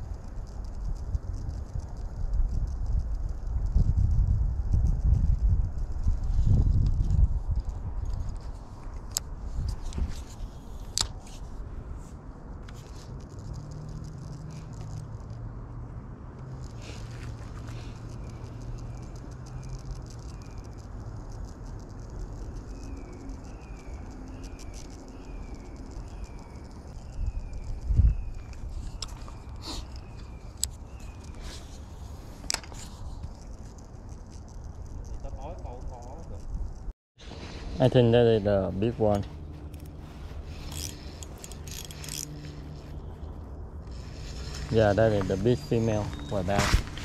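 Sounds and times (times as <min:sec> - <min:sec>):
wind rumble on microphone: 0:00.0 - 0:47.0
engine humming: 0:10.8 - 0:47.0
reel clicks: 0:39.1 - 0:42.8
fishing reel whirring: 0:39.7 - 0:42.9.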